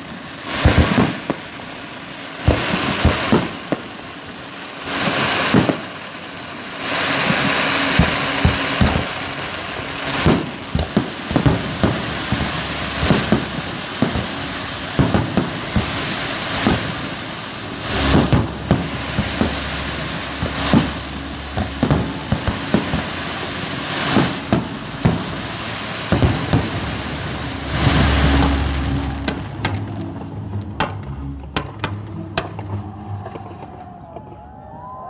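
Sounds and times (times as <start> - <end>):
fireworks bursting with sharp bangs: 0.0 - 34.4
crackling hiss: 0.0 - 35.0
heavy firework boom: 7.4 - 34.4.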